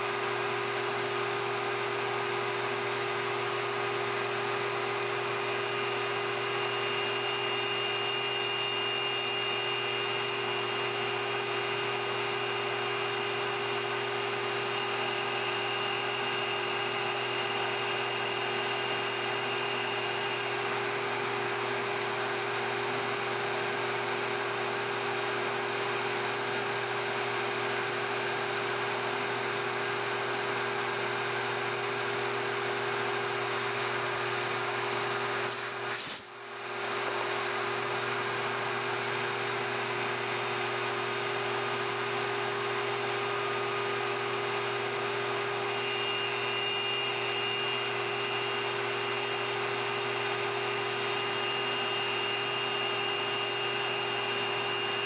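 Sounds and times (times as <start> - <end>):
lathe motor whining: 5.3 - 21.9, 42.6 - 55.0.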